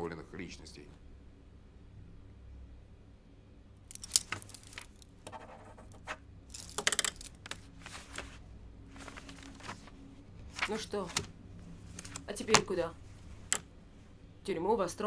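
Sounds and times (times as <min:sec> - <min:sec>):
paper rustling: 0:03.9 - 0:13.6
paper tapping on desk: 0:12.0 - 0:12.8.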